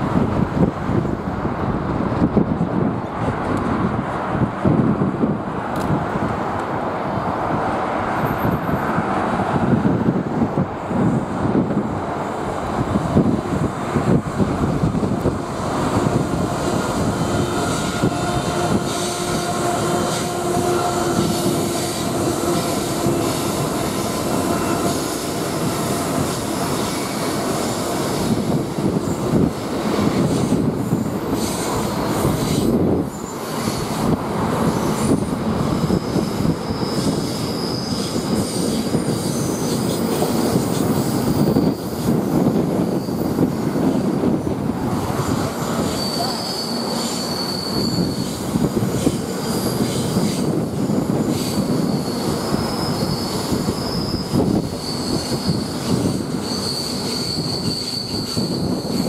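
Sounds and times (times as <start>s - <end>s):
freight train rumbling past: 0.0s - 59.0s
high wheel squeals: 30.2s - 44.4s, 45.6s - 59.0s.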